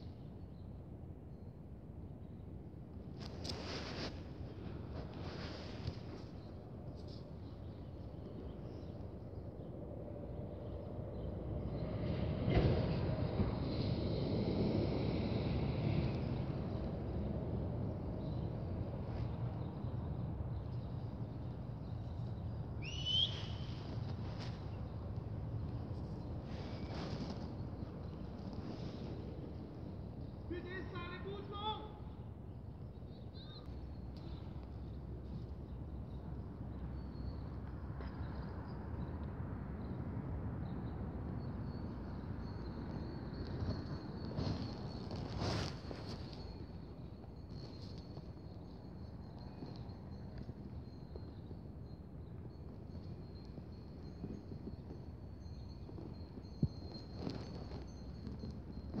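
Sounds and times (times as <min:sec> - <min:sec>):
wind rumble on microphone: 0:00.0 - 0:30.6, 0:31.9 - 0:59.0
short rising whistle: 0:22.8 - 0:23.8.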